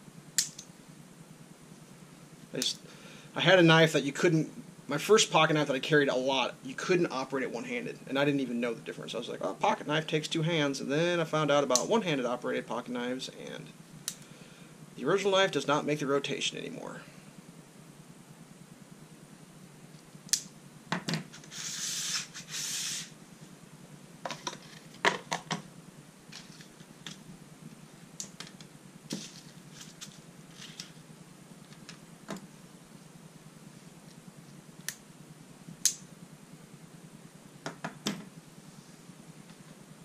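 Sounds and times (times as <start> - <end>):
rustling: 26.3 - 31.9.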